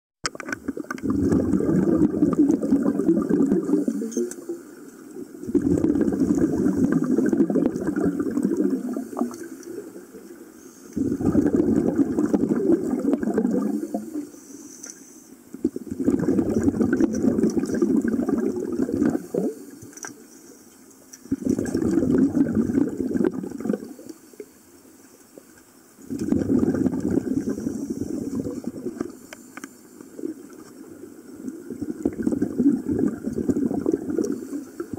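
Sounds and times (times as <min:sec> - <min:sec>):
gurgling exhaust bubbles: 0:00.5 - 0:04.3, 0:05.4 - 0:09.5, 0:11.0 - 0:14.2, 0:15.6 - 0:19.6, 0:21.3 - 0:24.0, 0:26.1 - 0:29.2, 0:31.6 - 0:34.9
diver breathing through regulator: 0:26.6 - 0:29.8.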